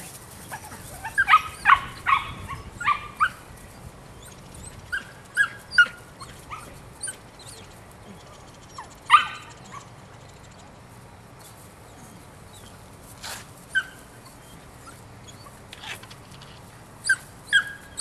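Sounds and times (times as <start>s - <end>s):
puppy yipping and barking: 0.5s - 3.4s, 4.2s - 7.7s, 8.7s - 9.9s, 13.7s - 14.0s, 17.0s - 18.0s.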